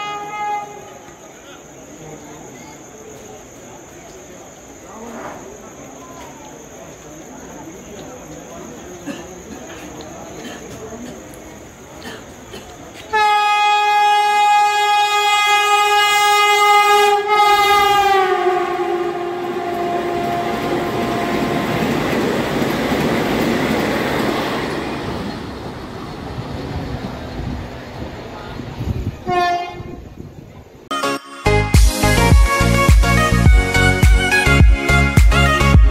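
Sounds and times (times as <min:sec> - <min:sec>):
train horn blast: 0:00.0 - 0:01.2, 0:13.1 - 0:21.9, 0:29.2 - 0:30.1
train wheels rushing on rails: 0:02.9 - 0:30.1.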